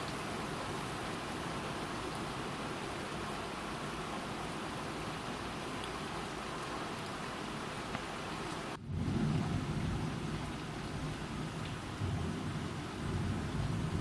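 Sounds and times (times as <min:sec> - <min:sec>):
rain hiss: 0:00.0 - 0:14.0
thunder rumbling: 0:08.8 - 0:14.0.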